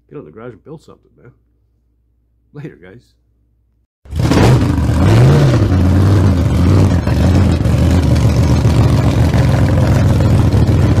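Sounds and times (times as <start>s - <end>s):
loud engine revving: 4.1s - 11.0s.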